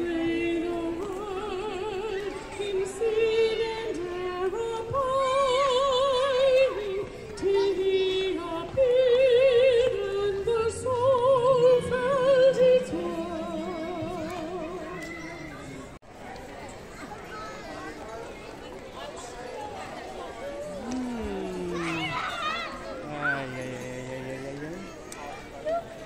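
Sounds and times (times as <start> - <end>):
woman singing with vibrato: 0.0 - 15.4.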